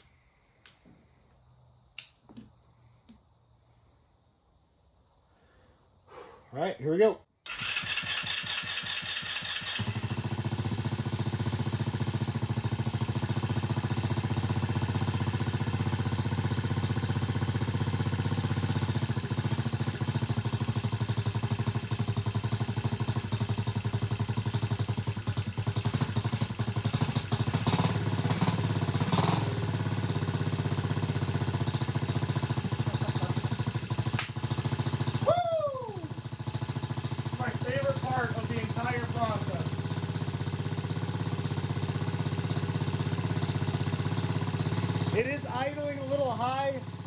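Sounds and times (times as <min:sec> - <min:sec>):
engine cranking on electric starter: 0:07.4 - 0:10.4
engine idling: 0:07.4 - 0:47.0.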